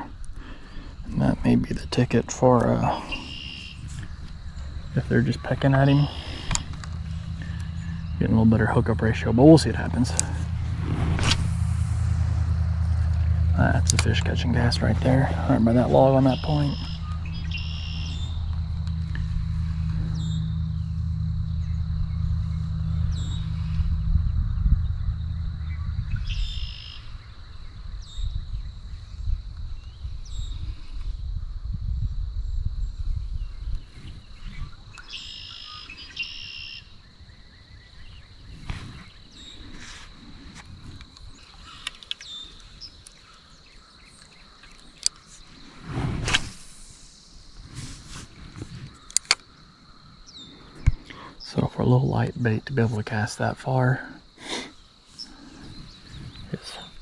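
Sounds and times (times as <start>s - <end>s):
birds chirping: 0.0s - 30.8s, 33.2s - 46.0s, 47.0s - 57.0s
steady low hum: 0.0s - 36.2s
high-pitched insect drone: 3.0s - 28.4s
high bird calls sliding down: 10.6s - 12.4s.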